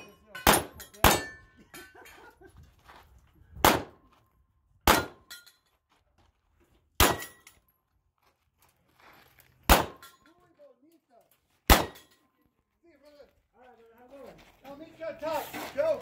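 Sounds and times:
handgun shots: 0.4 - 1.4, 3.6 - 4.0, 4.8 - 5.4, 7.0 - 7.4, 9.7 - 10.1, 11.7 - 12.2.

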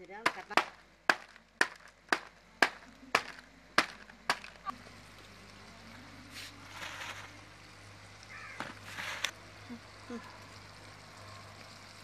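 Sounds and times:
wooden block pounding jaggery: 0.0 - 4.6.

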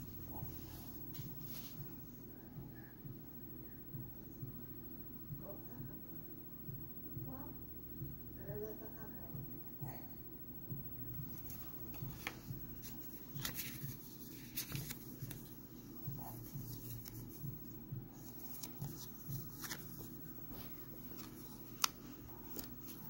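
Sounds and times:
low steady hum: 0.0 - 23.0
paper rustling: 11.3 - 23.0.

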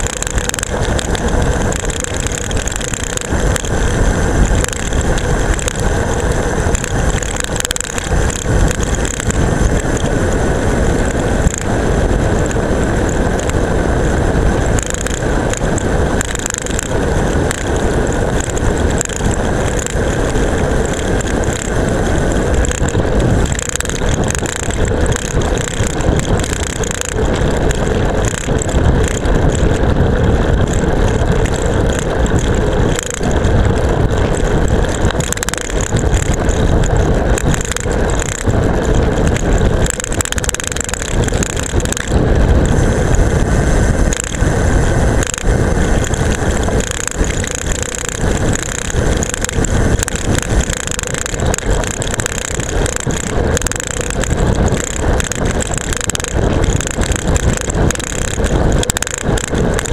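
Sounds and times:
camera rattling on bicycle: 0.0 - 59.9
tyre noise on asphalt: 0.0 - 59.9
wind rush: 0.0 - 59.9.

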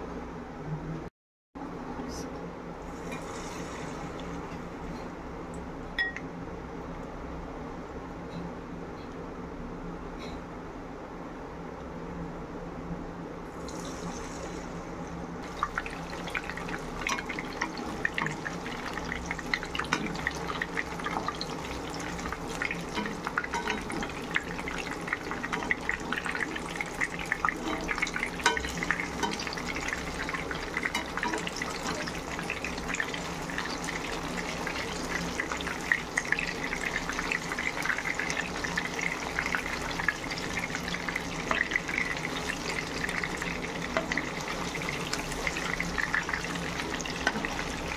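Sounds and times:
fish sizzling in hot oil: 15.4 - 47.9.

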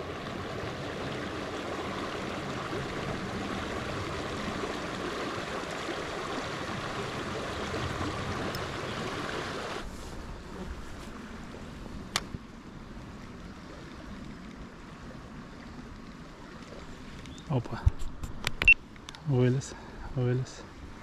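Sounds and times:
small river rushing: 0.0 - 17.8.

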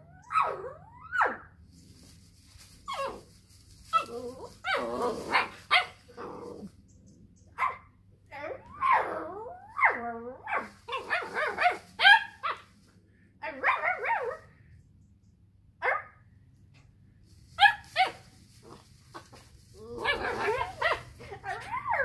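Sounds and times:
puppy barking and yelping: 0.0 - 1.6, 3.9 - 6.7, 7.5 - 12.7, 13.4 - 14.5, 15.8 - 16.2, 17.6 - 22.0.

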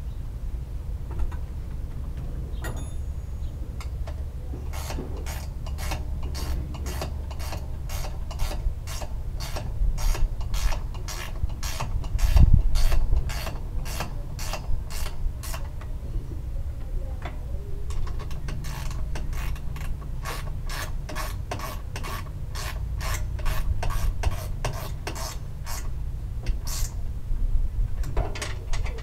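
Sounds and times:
ratchet wrench clicking: 4.7 - 15.7.

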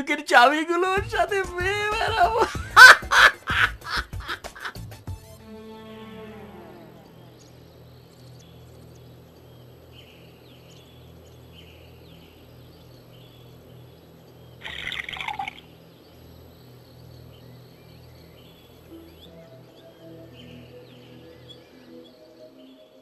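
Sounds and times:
steady low hum: 1.0 - 22.6
faint bird chirps: 6.7 - 23.0.

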